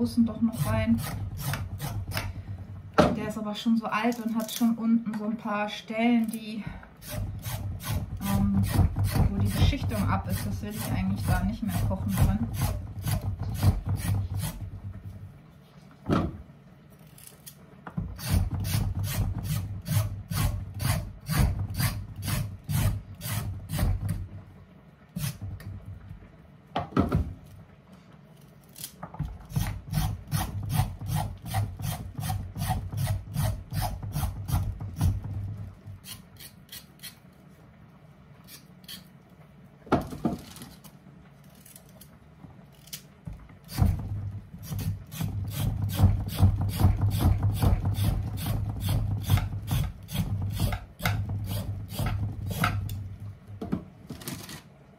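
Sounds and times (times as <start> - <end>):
knife rasping over potatoes: 36.0 - 37.2.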